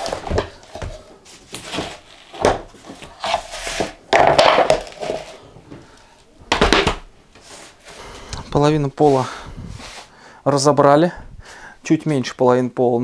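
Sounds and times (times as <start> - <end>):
wooden planks knocking and clattering: 4.1 - 5.4, 6.5 - 7.1.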